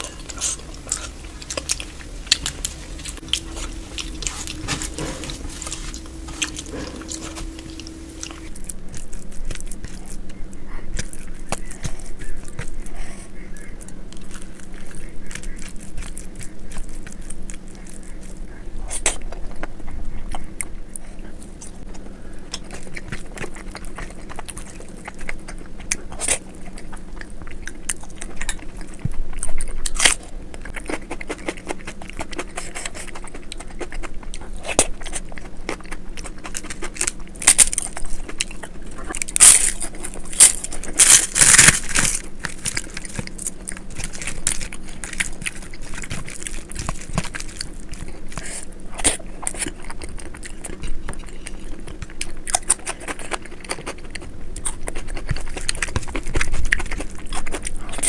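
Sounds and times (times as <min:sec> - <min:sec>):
hand mixing rice: 0:00.0 - 0:10.0
crisp crackles of crushing: 0:00.0 - 0:58.0
mouth chewing: 0:00.0 - 0:58.0.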